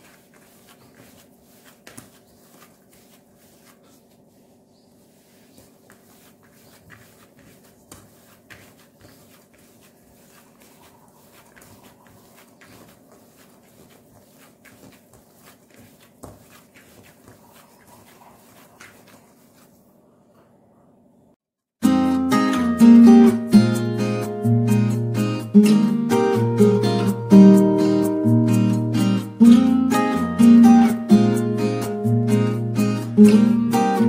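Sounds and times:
hand squishing curd in bowl: 0:00.0 - 0:19.9.

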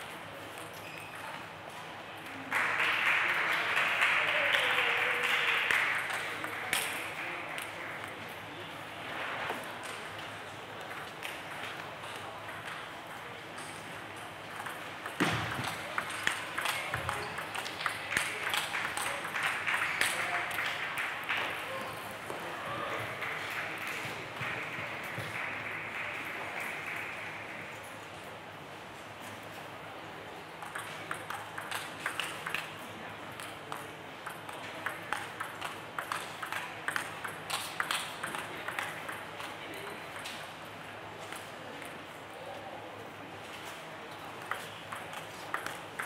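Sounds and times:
table tennis ball clicking: 0:14.5 - 0:20.2, 0:30.6 - 0:32.7, 0:33.3 - 0:40.4, 0:44.4 - 0:46.0.

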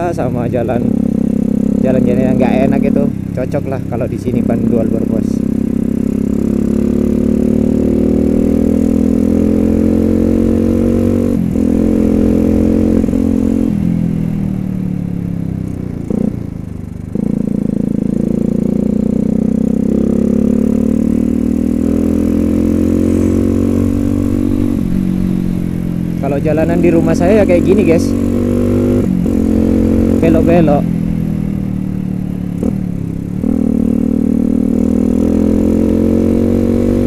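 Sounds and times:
motorcycle engine revving: 0:00.0 - 0:37.0.

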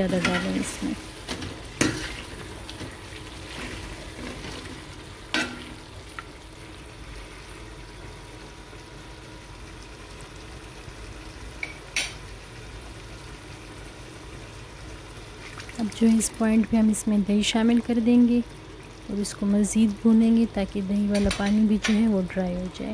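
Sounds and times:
meat and vegetables sizzling in a pan: 0:00.0 - 0:22.9.

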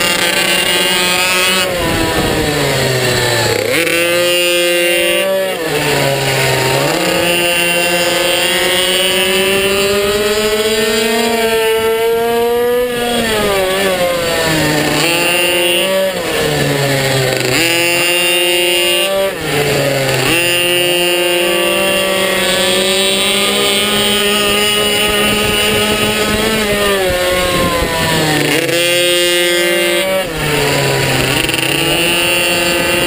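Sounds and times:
minibike engine at high revs: 0:00.0 - 0:33.0.

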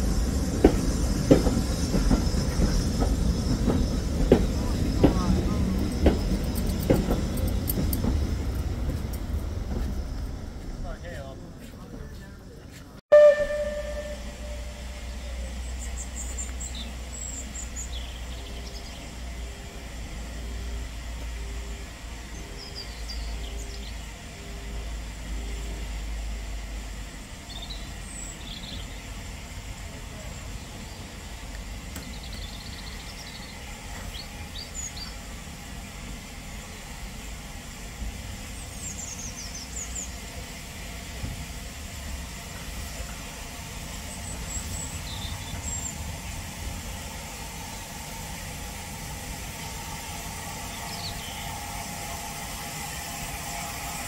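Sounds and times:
small birds chirping: 0:15.1 - 0:19.2, 0:32.0 - 0:36.8, 0:44.2 - 0:46.4, 0:50.7 - 0:51.6.

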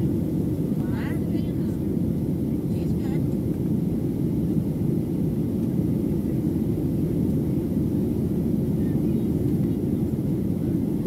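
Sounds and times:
airplane cabin engine roar: 0:00.0 - 0:11.0.

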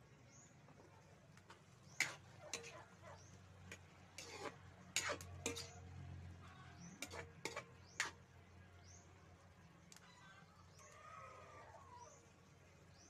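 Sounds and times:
metal ladle clanking in wok: 0:01.9 - 0:03.0, 0:03.6 - 0:05.9, 0:06.8 - 0:08.2.

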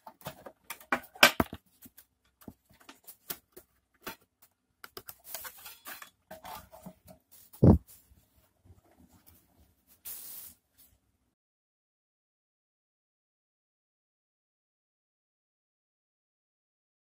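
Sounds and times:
dull thump: 0:07.6 - 0:07.8.

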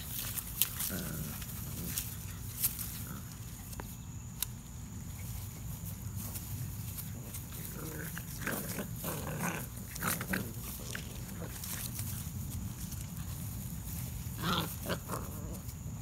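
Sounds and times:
puppies growling: 0:00.2 - 0:03.6, 0:07.0 - 0:16.0.

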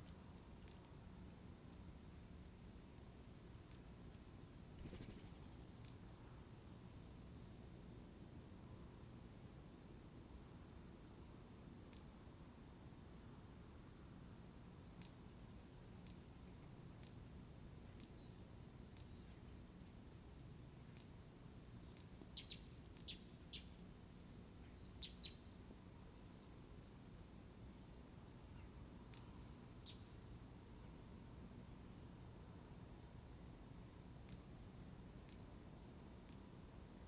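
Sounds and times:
high bird chirps: 0:22.3 - 0:27.0.

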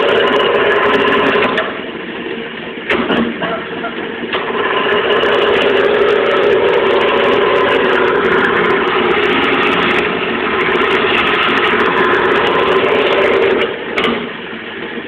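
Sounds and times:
wood lathe humming: 0:00.0 - 0:01.9, 0:04.2 - 0:14.0.

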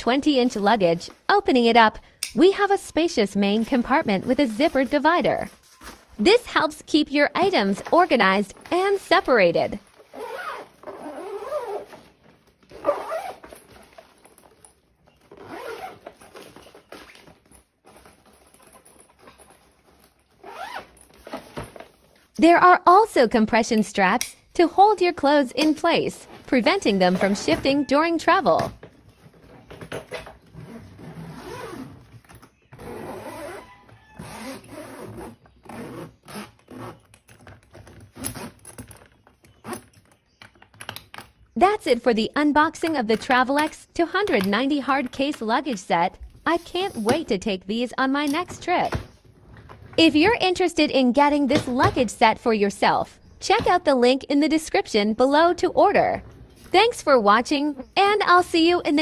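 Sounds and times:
zipper being pulled: 0:09.7 - 0:14.1, 0:15.3 - 0:17.2, 0:20.0 - 0:21.6, 0:30.5 - 0:32.1, 0:32.7 - 0:37.3
fabric lining scratching: 0:10.0 - 0:12.1, 0:12.7 - 0:13.5, 0:32.8 - 0:37.1.

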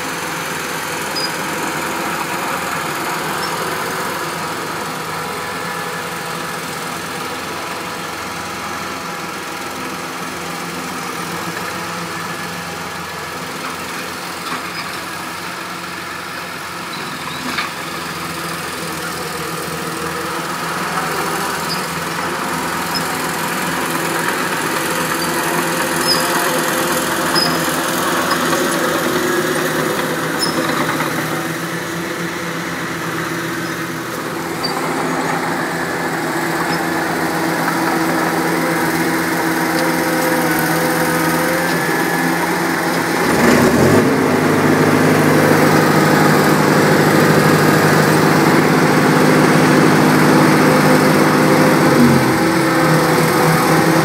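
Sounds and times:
heavy equipment diesel engines: 0:00.0 - 0:54.0.

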